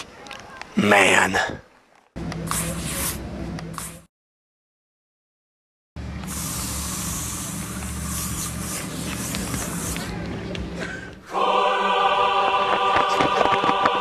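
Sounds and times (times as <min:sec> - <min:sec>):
aerosol spray hissing: 0:02.5 - 0:04.1, 0:06.2 - 0:10.2
choral music: 0:11.2 - 0:14.0.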